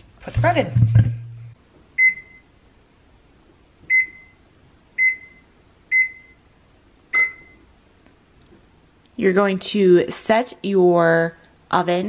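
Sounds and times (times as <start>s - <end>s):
oven keypad beeps: 2.0s - 2.5s, 3.9s - 4.4s, 5.0s - 6.4s, 7.1s - 7.6s.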